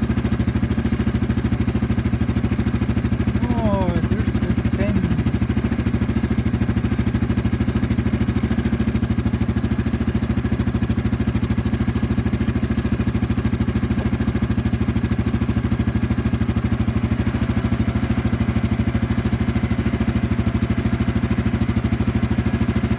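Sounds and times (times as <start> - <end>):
engine idling: 0.0 - 22.9.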